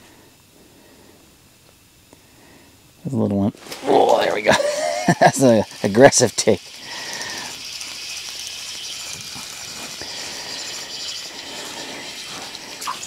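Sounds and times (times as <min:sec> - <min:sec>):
fishing reel whirring: 0:03.7 - 0:13.0.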